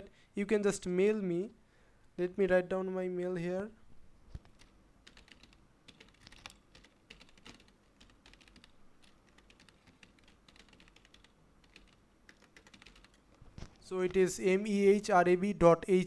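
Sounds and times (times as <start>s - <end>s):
typing on a computer keyboard: 4.4s - 13.4s.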